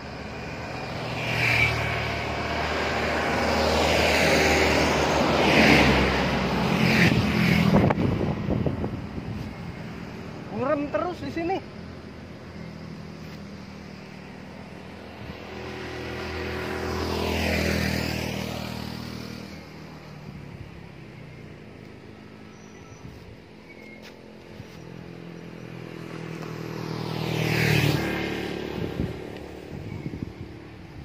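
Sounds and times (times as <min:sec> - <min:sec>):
vehicles passing on road: 0:00.0 - 0:31.0.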